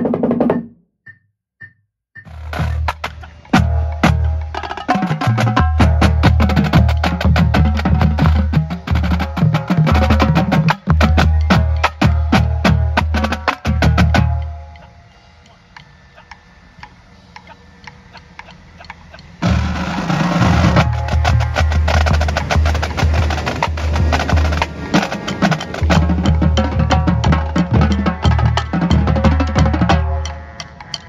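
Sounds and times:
marching drumline playing: 0:02.2 - 0:14.9, 0:19.4 - 0:30.8
faint clicks: 0:14.3 - 0:19.4.

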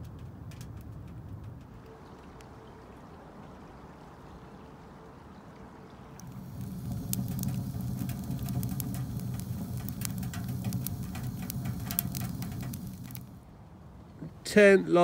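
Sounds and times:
fire crackling and popping: 0:00.0 - 0:01.9, 0:06.2 - 0:13.5
low rumble of fire: 0:00.0 - 0:02.8, 0:06.0 - 0:14.1.

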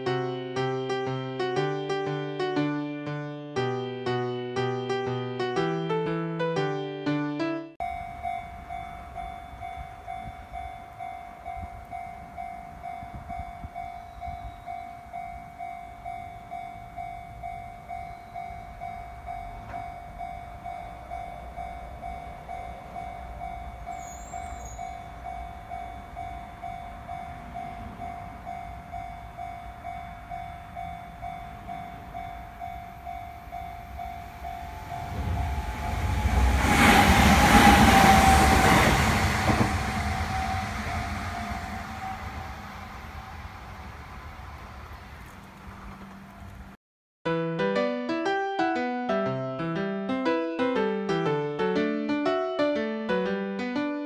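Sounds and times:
level-crossing bell ringing: 0:07.8 - 0:36.6
electric train passing: 0:07.8 - 0:46.8.

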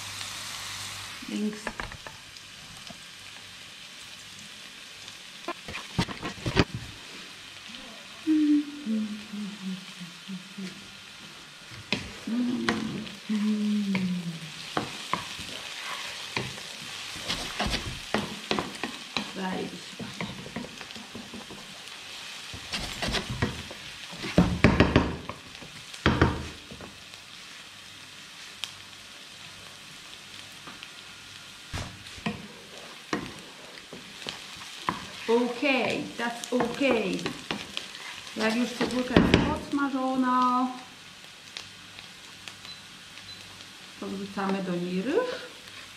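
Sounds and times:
onion sizzling in a frying pan: 0:00.0 - 0:45.9
spatula knocking and scraping pan: 0:14.7 - 0:21.7, 0:22.5 - 0:25.4, 0:33.1 - 0:35.9.

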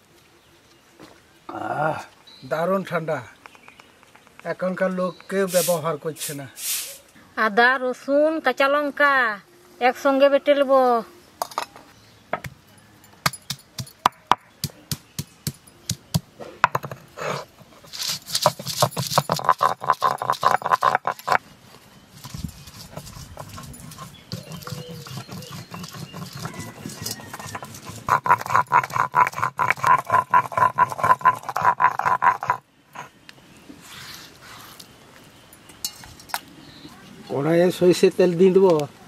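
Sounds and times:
stone grinding strokes: 0:17.2 - 0:21.4, 0:22.1 - 0:33.1.

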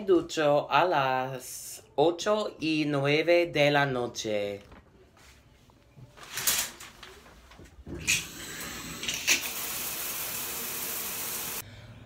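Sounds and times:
shower spray hissing: 0:08.2 - 0:11.6.

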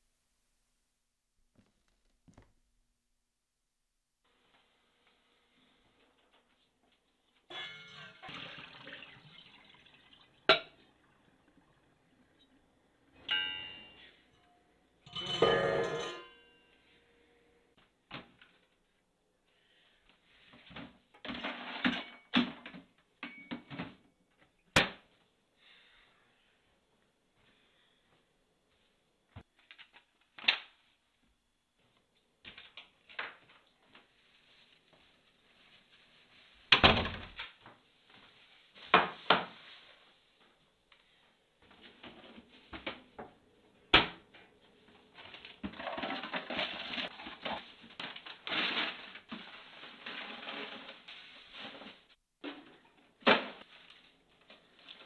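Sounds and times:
steel cookware clanking: 0:07.5 - 0:08.3, 0:13.2 - 0:16.7.

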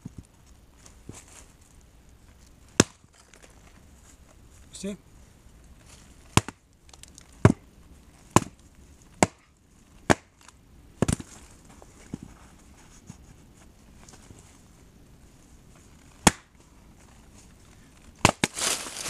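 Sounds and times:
axe chopping into a log: 0:02.8 - 0:03.0, 0:06.3 - 0:06.6, 0:08.3 - 0:08.6, 0:09.2 - 0:10.4, 0:11.0 - 0:11.3, 0:16.2 - 0:16.5, 0:18.2 - 0:18.6.

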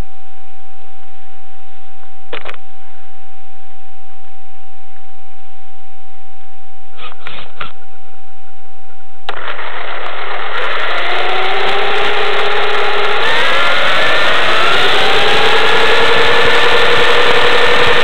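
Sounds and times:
electric motor whine rising: 0:09.3 - 0:18.0
rush of noise: 0:09.3 - 0:18.0.

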